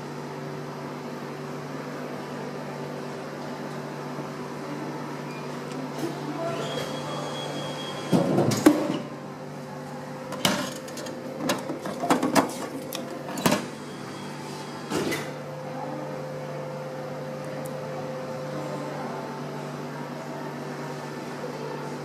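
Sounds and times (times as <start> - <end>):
vending machine humming: 0.0 - 22.0
vending machine clunks and clicks: 10.3 - 13.7.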